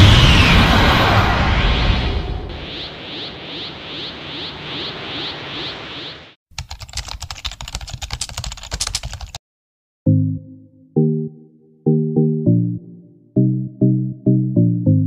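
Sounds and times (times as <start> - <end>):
rushing noise with swishes: 0.0 - 6.4
rapid keyboard clicks: 6.5 - 9.4.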